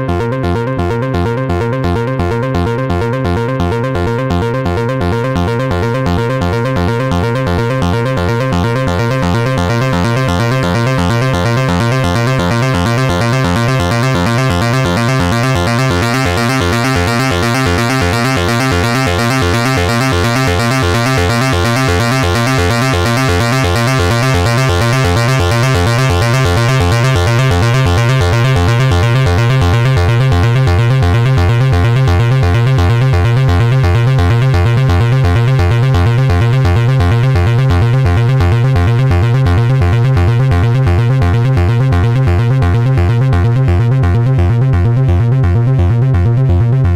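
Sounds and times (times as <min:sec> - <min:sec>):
repeating synth bass pulse: 0:00.0 - 0:46.9
high synth drone: 0:08.5 - 0:30.8.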